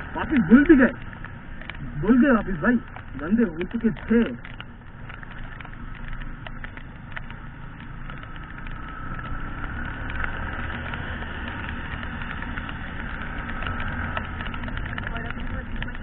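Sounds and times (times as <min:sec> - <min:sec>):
motorcycle engine: 0:00.0 - 0:16.0
raindrops hitting: 0:00.0 - 0:16.0.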